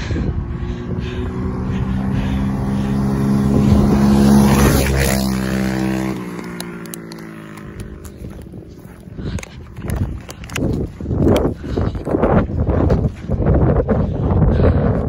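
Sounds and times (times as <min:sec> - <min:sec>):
small engine running: 0:00.0 - 0:11.9.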